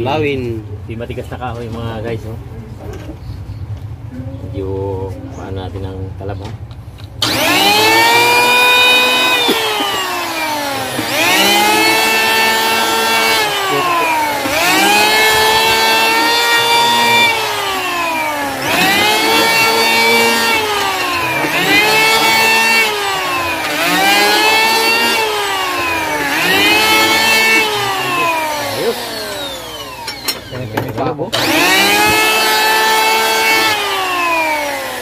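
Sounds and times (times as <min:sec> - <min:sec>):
electric hand planer whine: 0:07.2 - 0:35.0.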